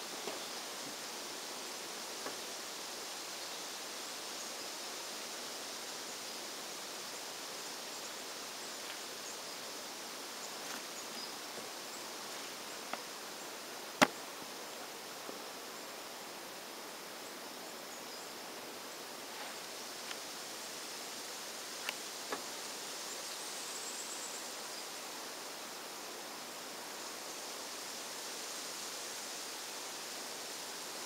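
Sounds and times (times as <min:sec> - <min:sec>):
insects chirring: 0:00.0 - 0:31.0
outdoor hiss: 0:00.0 - 0:31.0
faint ticks: 0:20.0 - 0:20.2.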